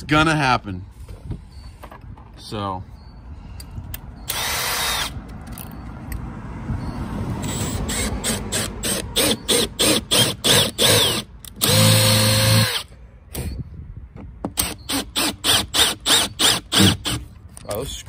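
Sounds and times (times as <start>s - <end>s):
cordless drill boring into fiberglass: 7.5s - 12.8s, 14.6s - 17.2s.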